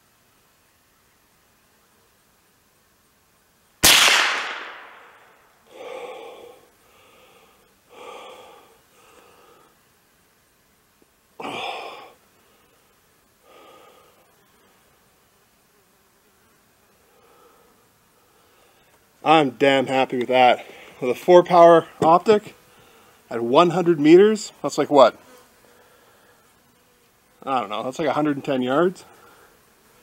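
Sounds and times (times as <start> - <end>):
rifle shot: 3.8 - 5.4
heavy breathing: 5.7 - 9.8, 11.4 - 14.3, 17.1 - 19.0, 22.6 - 23.3, 25.6 - 26.6, 29.0 - 29.6.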